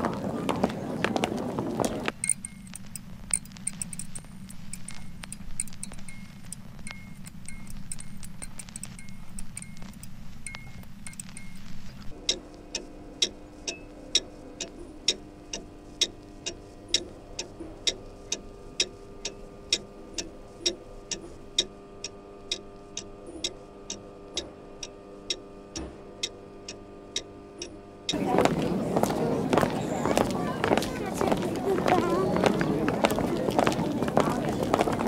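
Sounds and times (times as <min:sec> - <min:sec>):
low hum: 0:00.0 - 0:35.0
clock ticking: 0:02.1 - 0:28.2.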